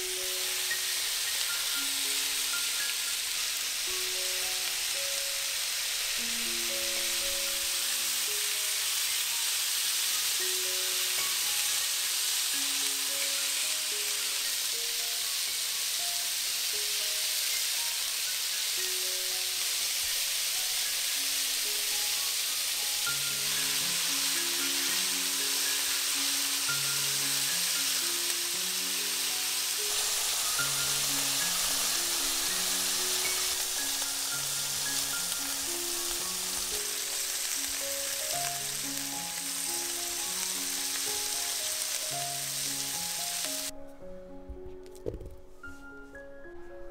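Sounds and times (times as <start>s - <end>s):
meat sizzling in a frying pan: 0.0s - 43.7s
light background melody: 0.0s - 46.9s.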